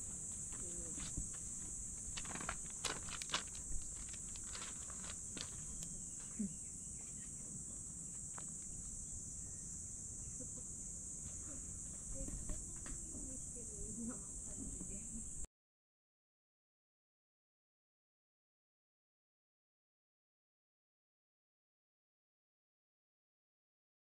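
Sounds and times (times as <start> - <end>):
high-pitched insect chorus: 0.0 - 15.5
pebbles crunching underfoot: 0.4 - 6.0.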